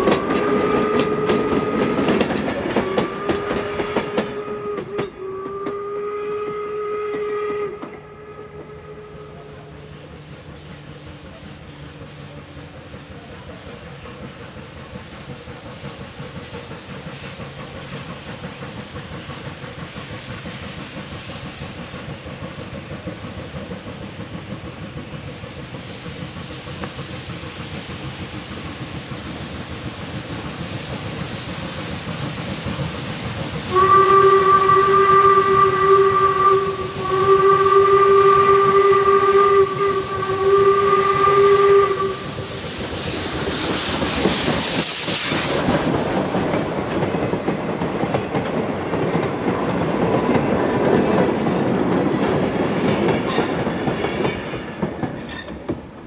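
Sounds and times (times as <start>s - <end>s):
steam whistle blasts: 0.0s - 10.4s, 33.7s - 43.9s
steam locomotive hiss and exhaust: 0.0s - 56.0s.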